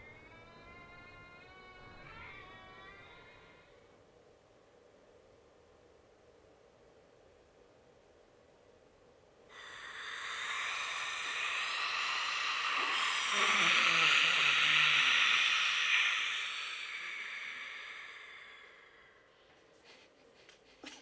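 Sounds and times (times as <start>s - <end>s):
low wavering voice: 0.0s - 3.8s, 9.6s - 18.9s
long breathy hiss: 0.0s - 4.0s, 9.5s - 20.2s.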